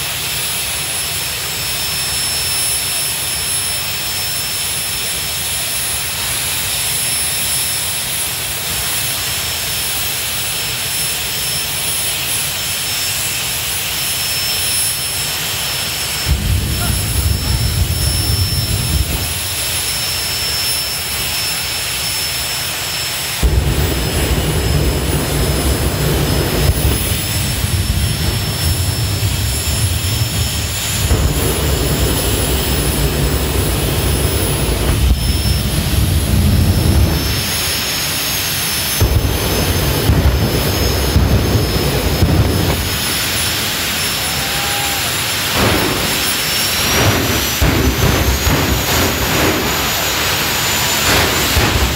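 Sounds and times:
high turbine whine: 0.0s - 51.9s
jet engine roar: 0.0s - 51.9s
afterburner surges: 13.8s - 51.9s.

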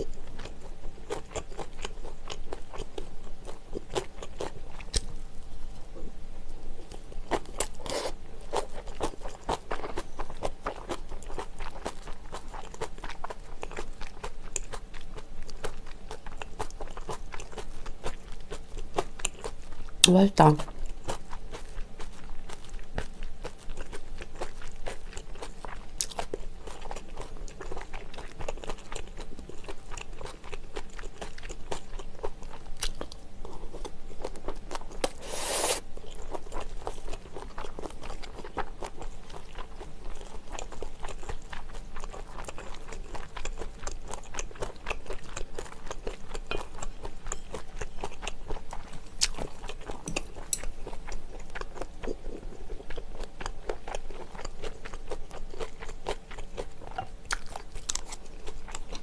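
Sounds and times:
chewing and crunching food: 0.0s - 59.0s
brief rasp: 35.2s - 35.8s.

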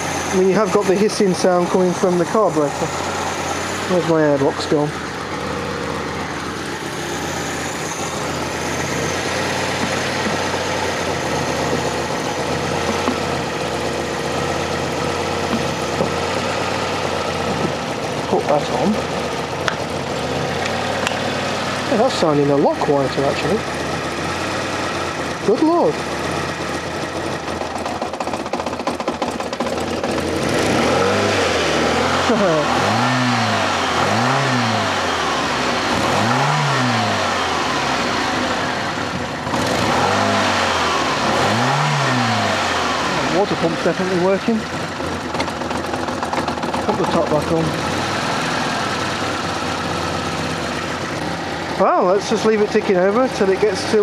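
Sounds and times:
car engine idling: 0.0s - 54.0s.

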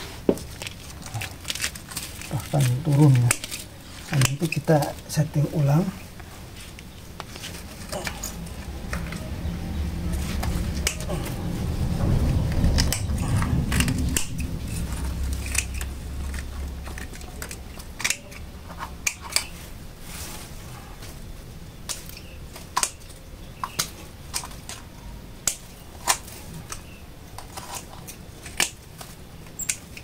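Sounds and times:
pruning shears snipping stems: 1.1s - 5.8s, 10.3s - 11.4s, 12.8s - 18.4s.

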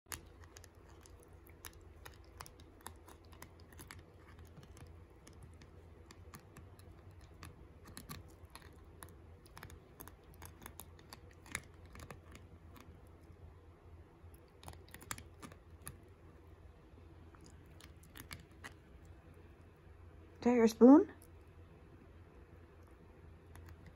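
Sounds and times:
puppy teeth clicking on plastic: 0.1s - 13.4s, 14.3s - 16.5s, 17.4s - 19.4s, 22.8s - 23.9s.

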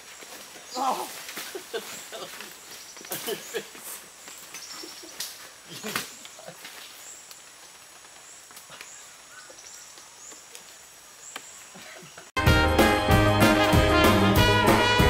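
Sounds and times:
brass swing music: 12.4s - 15.0s.

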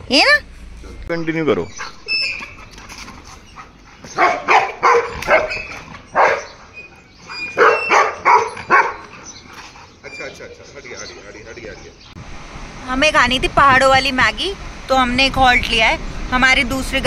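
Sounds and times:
dog barking: 4.1s - 9.2s.

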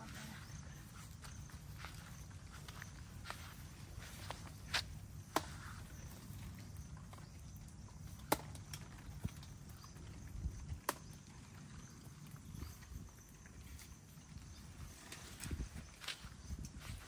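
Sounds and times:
footsteps on grass: 0.0s - 6.1s, 14.9s - 17.0s
sharp snaps and clicks: 7.1s - 10.0s, 10.6s - 11.4s.

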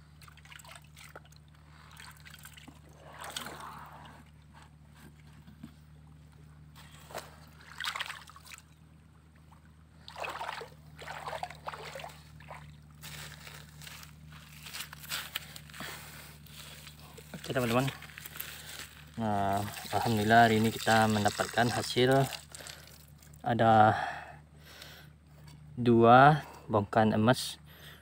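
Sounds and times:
water trickling and sloshing: 0.0s - 4.6s, 6.2s - 14.0s, 16.7s - 23.4s
short water splashes: 0.2s - 4.3s, 6.8s - 8.8s, 9.4s - 13.2s, 17.7s - 23.3s.

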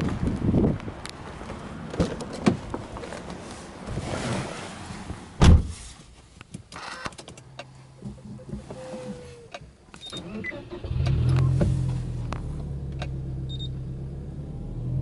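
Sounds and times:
car door shutting: 5.4s - 5.8s, 8.0s - 13.2s
car door swinging open: 5.4s - 5.8s.

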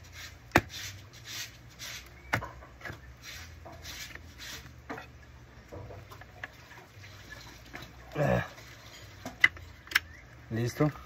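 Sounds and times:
screwdriver rubbing scrapes: 0.0s - 2.2s, 3.2s - 4.7s.

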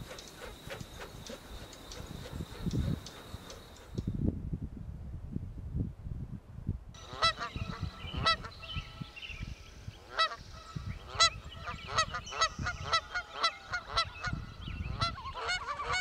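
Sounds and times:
faint bird chatter: 0.0s - 4.1s, 7.0s - 16.0s
birds honking: 7.0s - 9.1s, 10.0s - 16.0s.

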